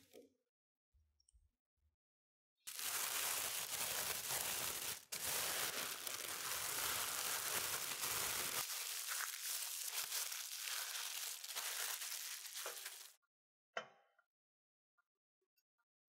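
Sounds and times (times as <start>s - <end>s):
plastic bag crinkling: 2.7s - 13.2s.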